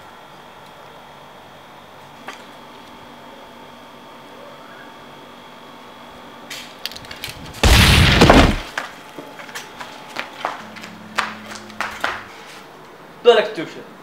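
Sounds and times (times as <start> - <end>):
loud shotgun blast: 7.6 - 8.7.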